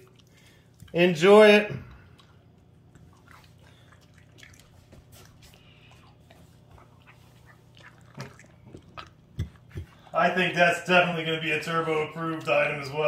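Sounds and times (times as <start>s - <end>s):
dog chewing wetly: 0.0s - 1.1s, 1.8s - 10.2s
low steady hum: 0.0s - 13.0s.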